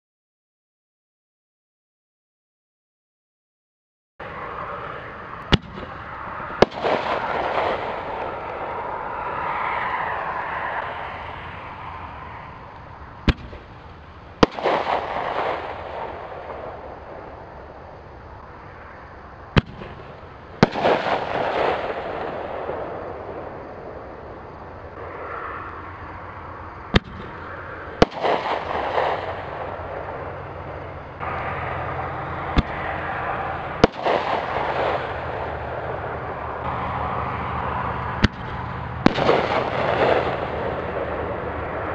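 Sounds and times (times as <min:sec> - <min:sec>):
firework crackling: 0:04.3 - 0:18.0, 0:19.5 - 0:25.2, 0:26.9 - 0:36.6, 0:37.6 - 0:41.9
mortar launch bang: 0:05.5 - 0:06.0, 0:13.2 - 0:13.7, 0:38.2 - 0:40.8.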